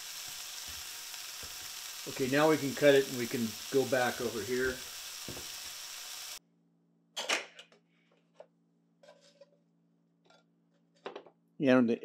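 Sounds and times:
food sizzling in frying pan: 0.0 - 6.4.

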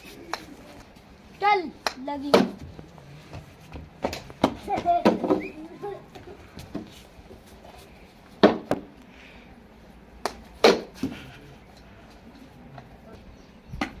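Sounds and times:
plastic bat hitting ball: 10.2 - 11.1.

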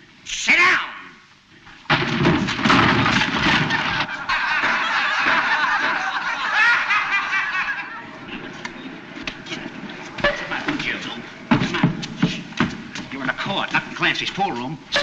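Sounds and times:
men yelping and squealing: 3.6 - 8.5, 9.3 - 12.6.

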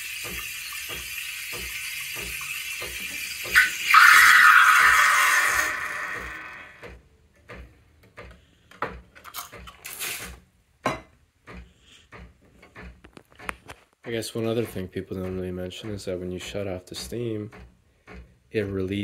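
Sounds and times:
steam wand hissing: 0.0 - 6.8.

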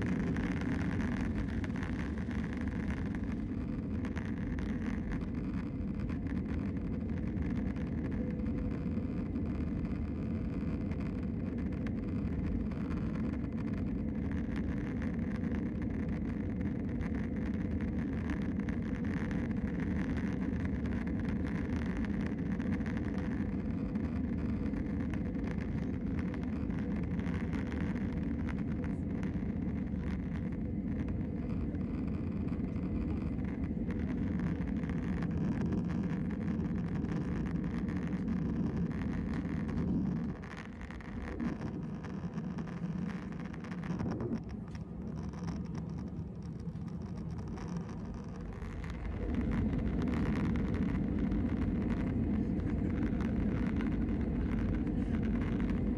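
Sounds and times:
jet engines in cabin: 0.0 - 55.9.

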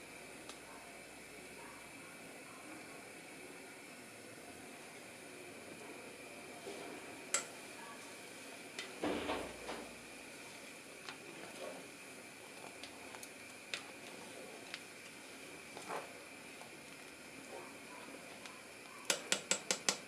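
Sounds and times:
gas stove hiss: 0.0 - 20.0
cup clicking against pot: 19.1 - 20.0.

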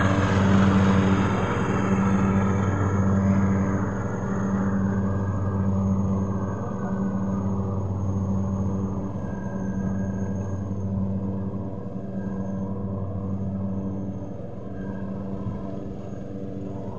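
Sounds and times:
lawn mower engine running: 0.0 - 4.3.

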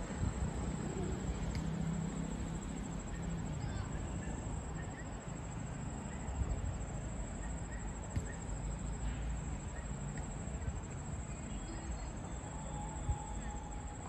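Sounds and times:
faint chirps: 7.4 - 14.0
thin high trill: 11.6 - 14.0.

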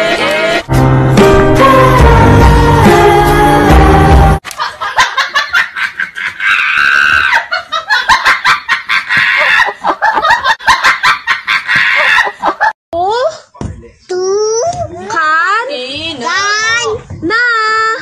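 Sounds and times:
person laughing hard: 4.5 - 12.7.

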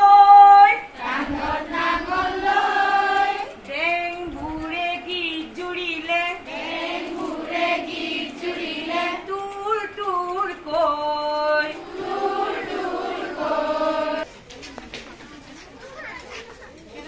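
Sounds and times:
woman singing into microphone: 0.0 - 2.0, 3.4 - 6.5, 9.1 - 11.8.

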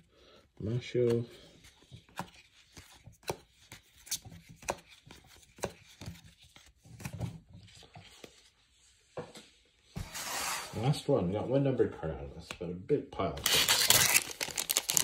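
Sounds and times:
cards being flipped: 1.0 - 7.2.

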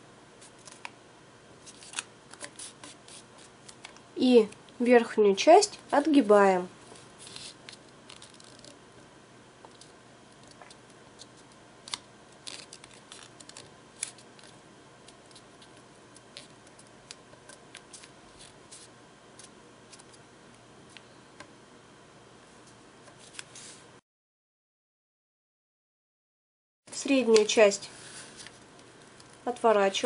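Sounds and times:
paper being folded and creased: 1.6 - 4.0, 7.2 - 8.8, 9.8 - 20.2, 28.0 - 29.3.

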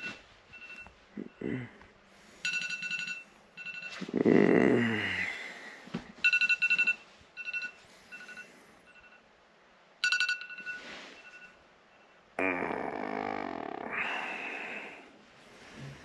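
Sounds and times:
phone alarm beeping: 0.0 - 1.4, 2.4 - 4.1, 6.2 - 9.2, 10.0 - 12.2
man groaning: 4.1 - 5.5, 12.4 - 15.0.

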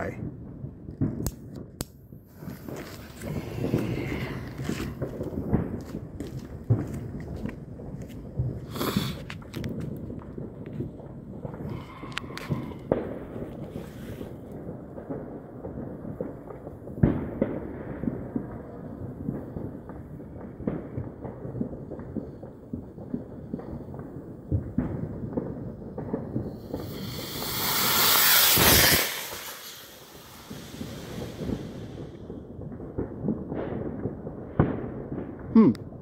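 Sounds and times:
rocket motor rushing hiss: 26.6 - 32.2
fuse crackling: 26.7 - 32.2.

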